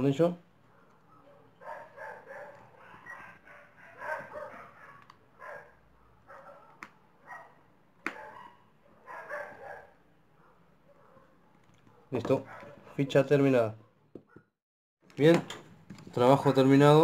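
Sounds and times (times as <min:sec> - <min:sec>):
dog barking: 0:00.7 - 0:13.0.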